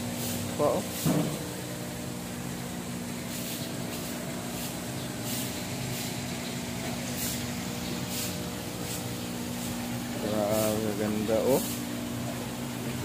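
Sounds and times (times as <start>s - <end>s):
low mechanical hum: 0.0s - 13.0s
even hiss: 3.0s - 12.1s.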